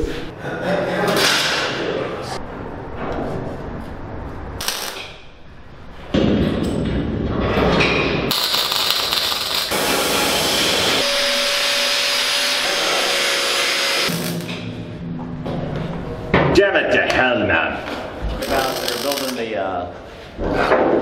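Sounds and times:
welding arc crackling hiss: 4.6 - 5.2, 8.3 - 14.6, 18.4 - 19.5.

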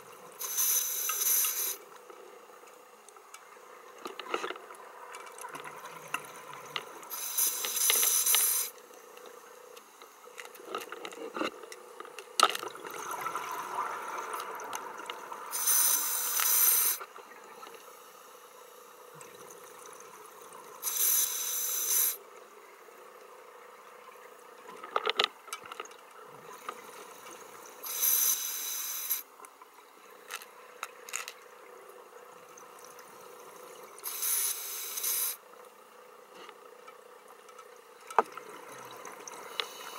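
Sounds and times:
faint steady hum: 0.0 - 39.9
exhaled bubbles gurgling: 12.7 - 16.2.

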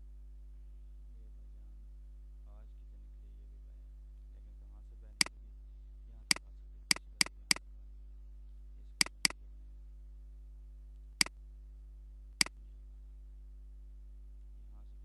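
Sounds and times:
steady low hum: 0.0 - 15.0
computer mouse clicks: 9.0 - 9.4.

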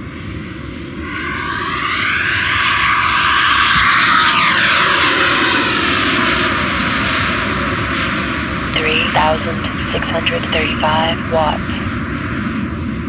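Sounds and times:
model jet fan whine: 0.0 - 9.4.

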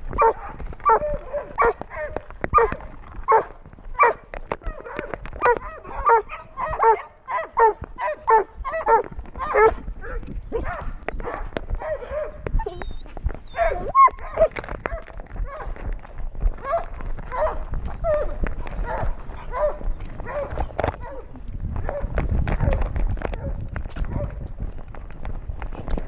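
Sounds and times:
puppy whining and yipping: 11.8 - 15.7.

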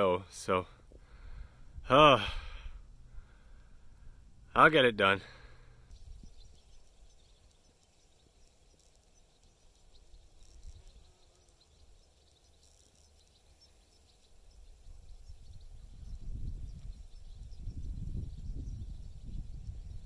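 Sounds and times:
wind buffeting microphone: 1.0 - 4.5, 5.8 - 7.4, 14.4 - 20.0
faint high-pitched chirps: 5.2 - 20.0.

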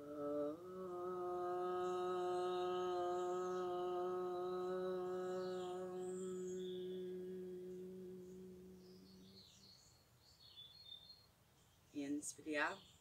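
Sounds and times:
woman chanting om: 0.0 - 9.5.

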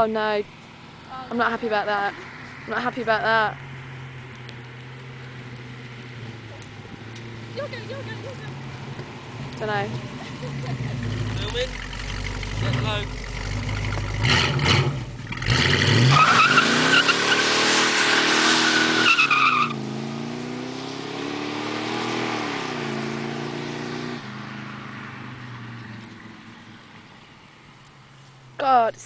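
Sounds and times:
car engine accelerating hard: 2.1 - 27.3
tyres squealing: 16.0 - 19.8.

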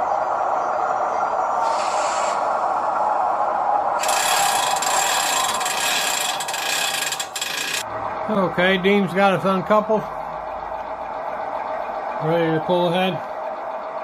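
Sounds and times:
steady hum: 0.0 - 14.0
air hiss: 1.6 - 2.5
mechanical rubbing and ratcheting: 4.0 - 7.9.

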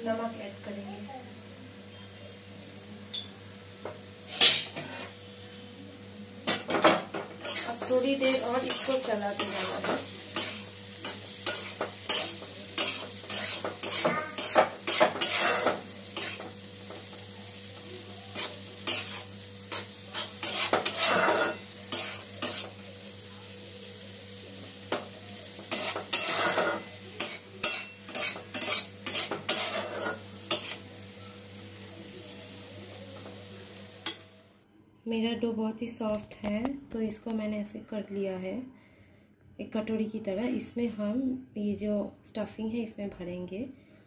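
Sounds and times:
metal spoon scraping a wok: 4.3 - 5.2, 6.5 - 16.6, 18.3 - 22.8, 24.9 - 30.9.

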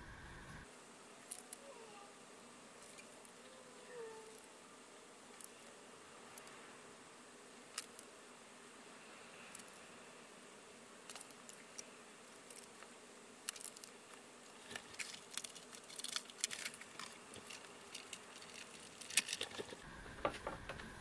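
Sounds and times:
paper rustling: 14.6 - 19.8.

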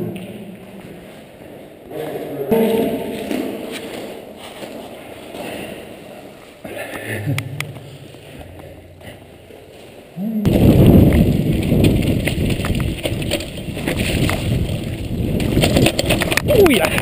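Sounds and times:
mountain bike rattling over rocks: 10.5 - 17.0.

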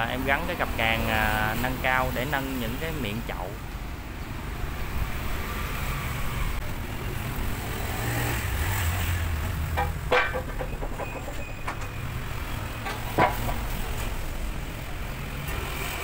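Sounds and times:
low rumble of road traffic: 0.0 - 16.0
sharp metal clanks: 9.7 - 12.0.

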